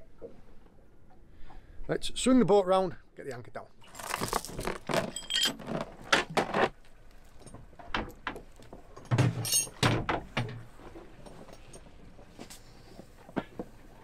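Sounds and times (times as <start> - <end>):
anchor chain clanking: 3.8 - 12.0.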